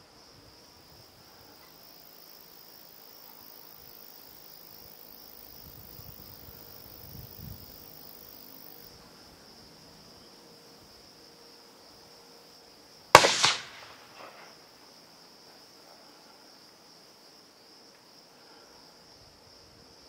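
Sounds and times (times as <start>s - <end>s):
crickets chirring: 0.0s - 20.0s
rifle shot with echo: 13.2s - 14.5s.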